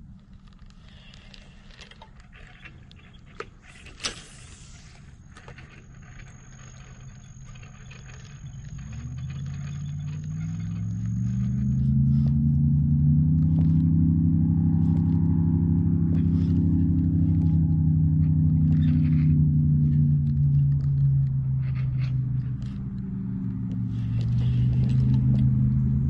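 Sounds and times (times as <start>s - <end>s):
engine running: 0.0s - 26.0s
low rumble: 6.0s - 26.0s.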